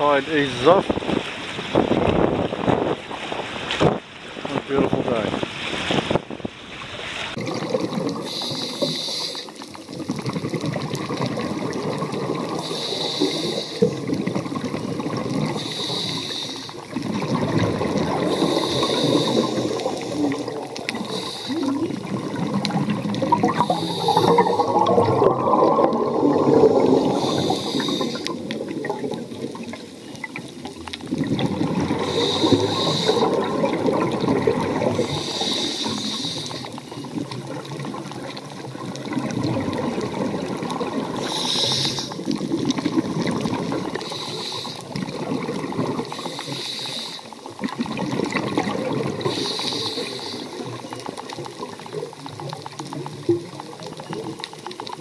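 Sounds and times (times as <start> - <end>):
water rushing and bubbling: 0.0 - 55.0
short hiss: 41.2 - 42.2.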